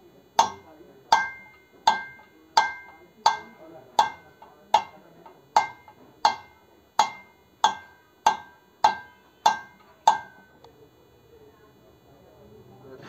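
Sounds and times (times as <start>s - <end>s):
hammer striking steel drift: 0.4s - 10.5s.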